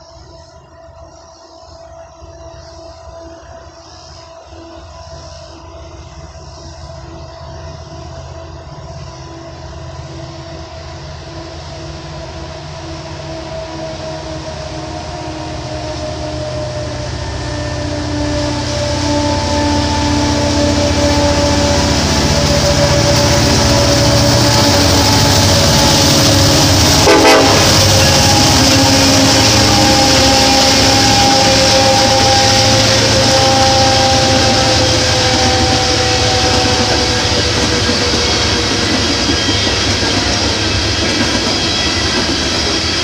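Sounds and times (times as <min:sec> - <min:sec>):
rumble and clatter of freight cars: 0:00.0 - 0:43.0
train air horn chord: 0:12.8 - 0:39.4.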